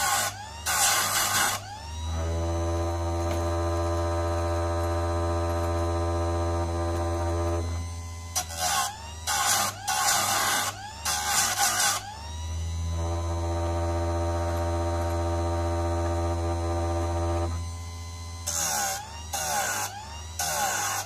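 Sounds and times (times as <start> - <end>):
chain sharpener grinding: 8.4 - 12.1.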